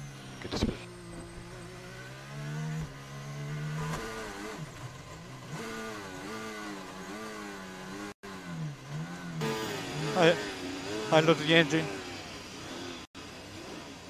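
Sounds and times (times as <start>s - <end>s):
racing car engine over radio: 0.0s - 4.7s, 9.4s - 12.8s.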